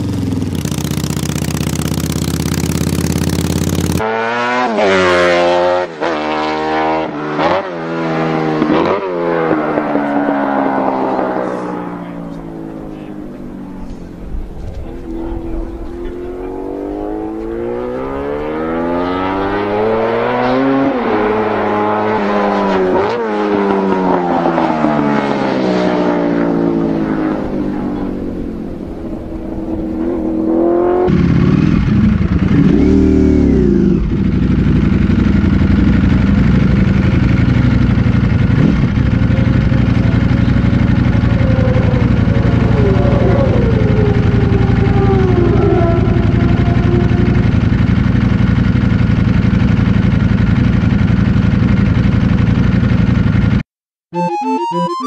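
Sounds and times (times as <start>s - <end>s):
racing motorcycles passing: 0.0s - 53.6s
motorcycle engine revving and idling: 0.0s - 53.7s.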